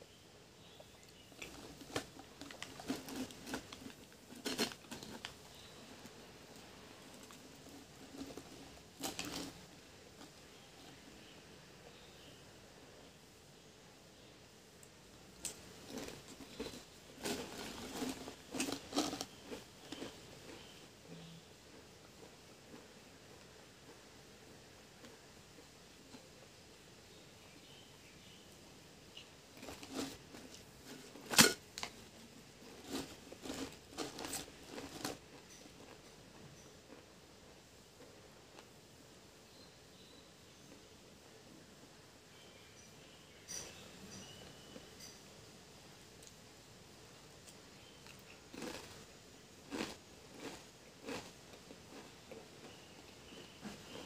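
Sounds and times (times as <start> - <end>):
potato chips being chewed: 1.0 - 10.6, 15.4 - 20.8, 21.7 - 24.1, 29.6 - 37.1, 47.4 - 54.0.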